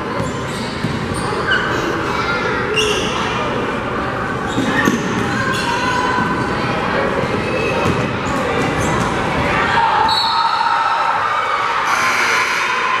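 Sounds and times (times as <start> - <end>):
sneakers squeaking on floor: 0.0 - 1.8, 2.7 - 3.4, 4.4 - 6.5, 10.0 - 10.6
scattered voices in hall: 0.0 - 13.0.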